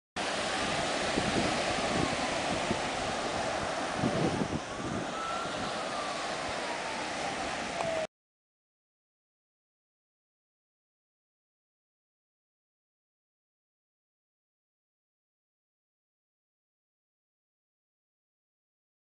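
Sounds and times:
wind buffeting microphone: 0:00.2 - 0:08.0
ocean surf breaking on beach: 0:00.2 - 0:08.1.

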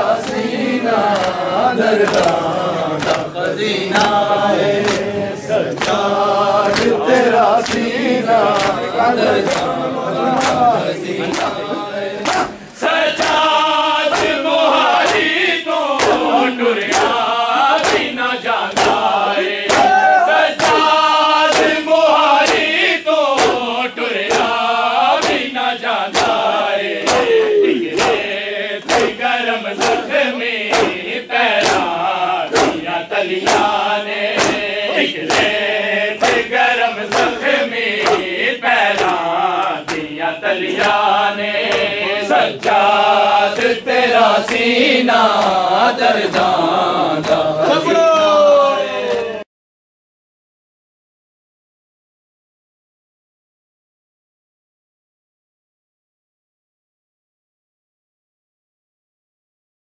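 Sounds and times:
men chanting in unison: 0:00.0 - 0:49.5
hands slapping chests: 0:00.1 - 0:24.6, 0:25.2 - 0:25.5, 0:26.1 - 0:48.5.

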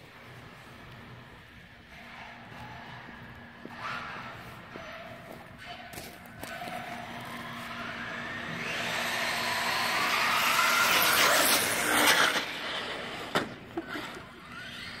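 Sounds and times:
electric motor whining: 0:06.4 - 0:15.0.

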